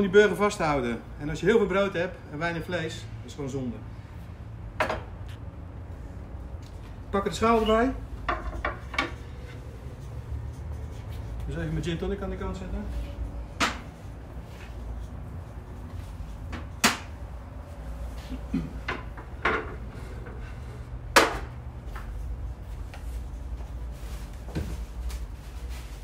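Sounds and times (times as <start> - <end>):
dishes knocking on wooden table: 4.8 - 5.1.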